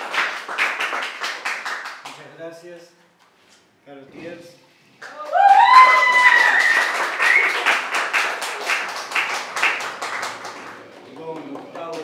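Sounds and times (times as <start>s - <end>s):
audience clapping: 0.0s - 2.2s, 5.0s - 12.0s
loud rising whoop: 5.1s - 7.6s.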